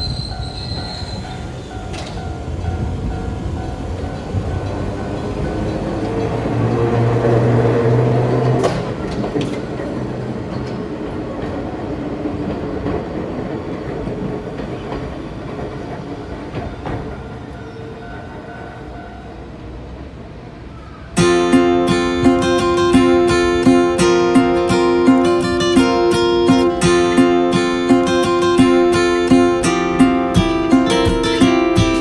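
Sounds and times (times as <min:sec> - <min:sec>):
wheels clicking over rail joints: 0:00.0 - 0:17.8
train passing with low hum: 0:00.0 - 0:32.0
acoustic guitar music: 0:21.2 - 0:32.0.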